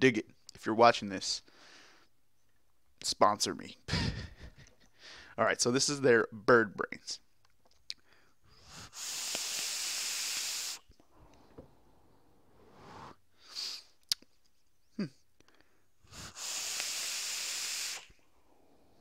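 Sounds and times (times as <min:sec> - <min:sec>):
vape atomizer hissing: 0:08.6 - 0:10.9, 0:16.1 - 0:18.2.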